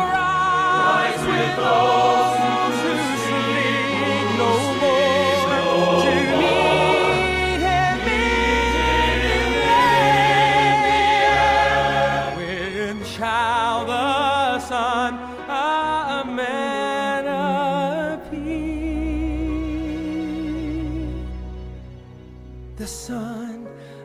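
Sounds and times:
voices singing gospel song: 0.0 - 13.1
bass accompaniment: 0.0 - 23.4.

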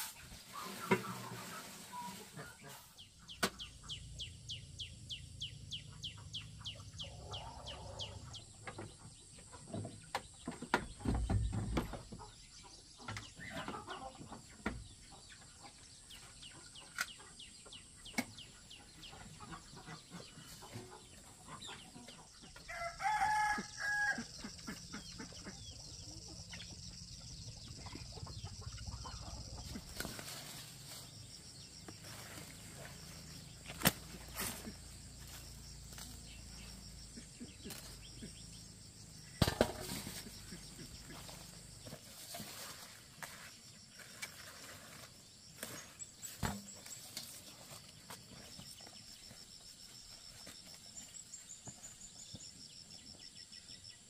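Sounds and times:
chickens clucking: 0.0 - 4.6, 5.7 - 22.8, 24.2 - 49.3
rooster crowing: 22.7 - 24.4.

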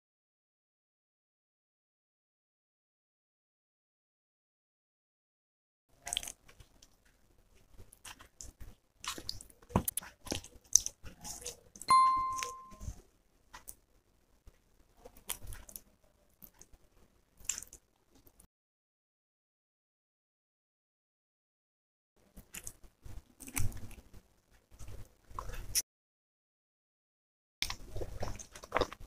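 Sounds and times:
bell-like chime: 11.9 - 12.9.

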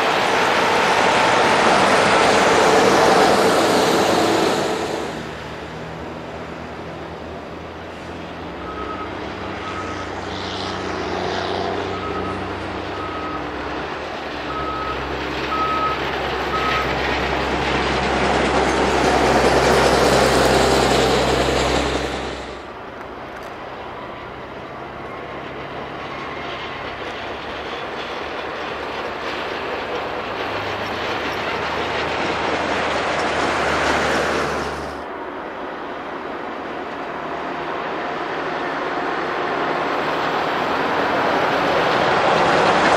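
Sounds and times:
diesel rail machine engines: 0.0 - 42.9.

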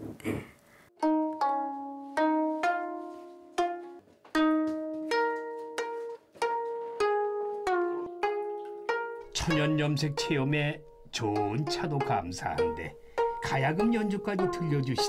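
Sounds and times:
plucked zither notes: 1.0 - 15.0.

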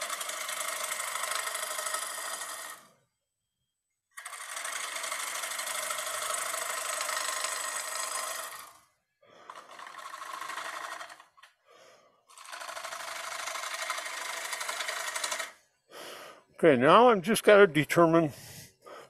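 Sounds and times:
lathe gouge rasping on wood: 4.2 - 8.7, 12.4 - 15.5.

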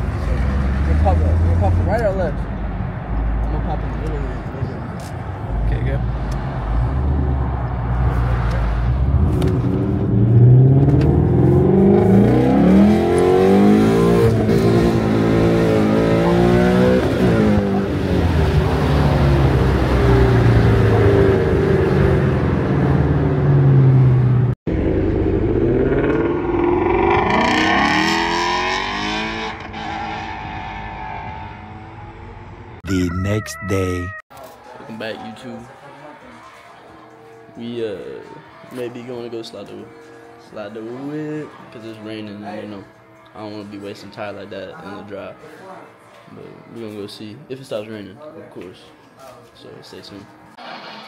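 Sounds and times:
car engines revving: 0.0 - 32.9.

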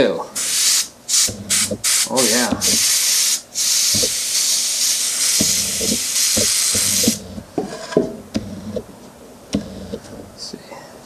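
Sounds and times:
airbrush hissing: 0.4 - 7.5, 8.4 - 8.8, 9.6 - 10.0.

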